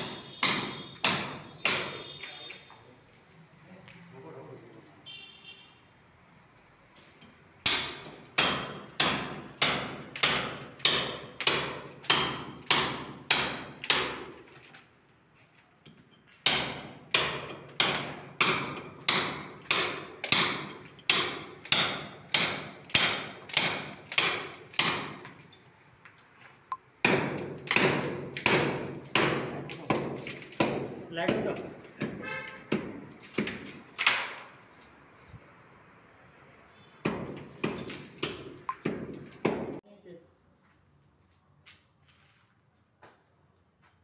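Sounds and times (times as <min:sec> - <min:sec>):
hammer striking chisel: 0:00.0 - 0:02.3, 0:07.0 - 0:14.5, 0:15.8 - 0:25.5, 0:27.0 - 0:34.5, 0:37.0 - 0:39.8.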